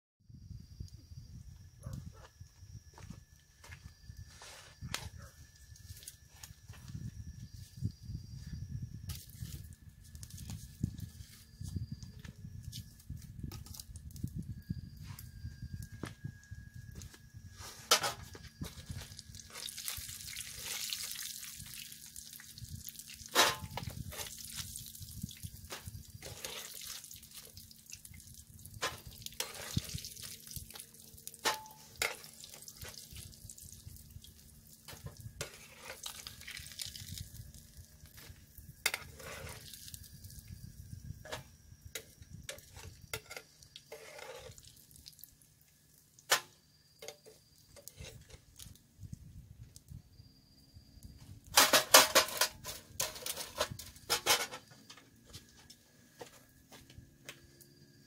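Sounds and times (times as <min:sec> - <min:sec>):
metal utensil scraping pan: 0:31.5 - 0:32.4, 0:42.7 - 0:44.6.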